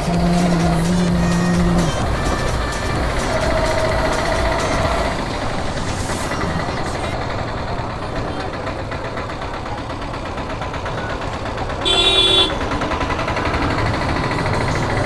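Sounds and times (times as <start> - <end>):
motorcycle engine running: 0.0 - 15.0
street noise: 0.0 - 15.0
vehicle horn honking: 11.8 - 12.8.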